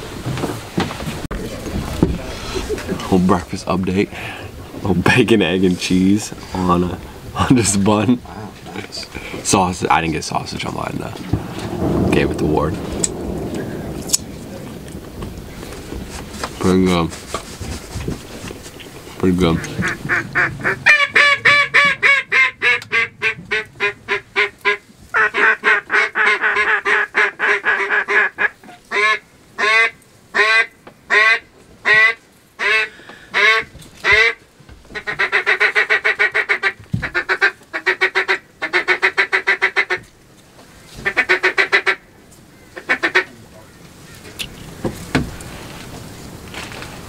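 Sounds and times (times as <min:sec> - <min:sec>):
duck call quacks and chatter: 0:19.5 - 0:34.4, 0:35.0 - 0:40.1, 0:41.0 - 0:42.0, 0:42.8 - 0:43.4.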